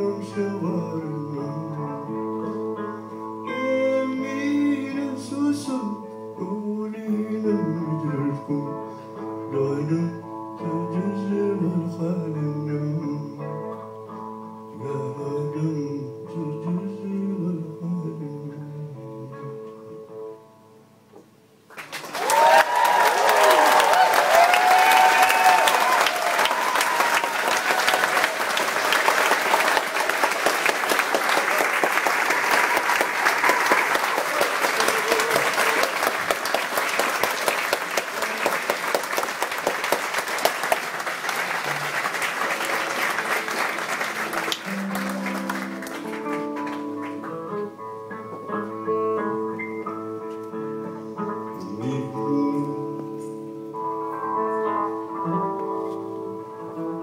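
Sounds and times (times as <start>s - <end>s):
guitar picking single notes: 0.0s - 15.0s, 44.4s - 57.0s
audience applauding: 21.7s - 47.7s.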